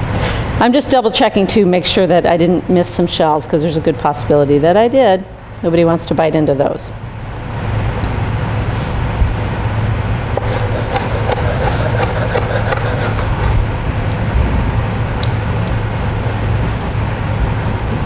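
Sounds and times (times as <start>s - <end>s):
steady low hum: 4.5s - 18.0s
knife chopping on cutting board: 10.4s - 13.6s.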